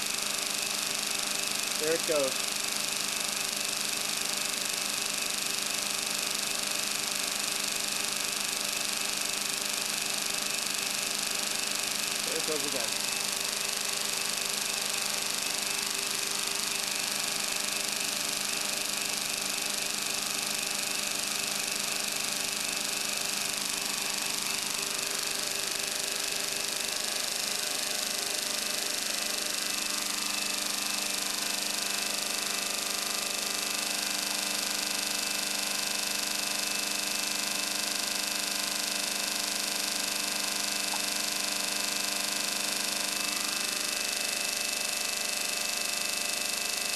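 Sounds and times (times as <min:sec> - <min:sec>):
motor-driven rotors whirring: 0:00.1 - 0:07.5, 0:11.6 - 0:34.3.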